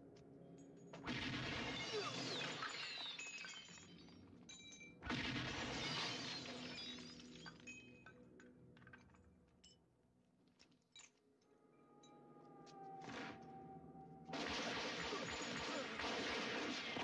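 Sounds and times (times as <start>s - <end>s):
debris falling and clattering: 0.9s - 9.8s
glass shattering: 1.3s - 8.2s, 14.4s - 17.0s.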